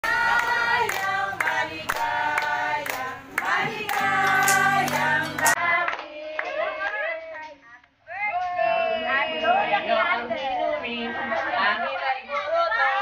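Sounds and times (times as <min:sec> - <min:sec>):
people clapping in time: 0:00.0 - 0:07.5
women singing together: 0:00.0 - 0:13.0.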